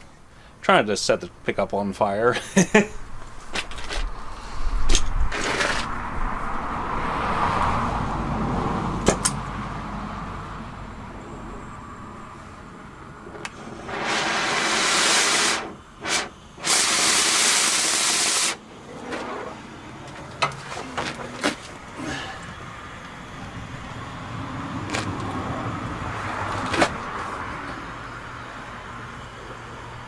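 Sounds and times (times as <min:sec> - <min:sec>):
cutting torch rushing hiss: 0:03.7 - 0:06.0, 0:12.4 - 0:30.0
torch flame hissing: 0:12.4 - 0:27.4
torch ignition pop: 0:13.3 - 0:18.6.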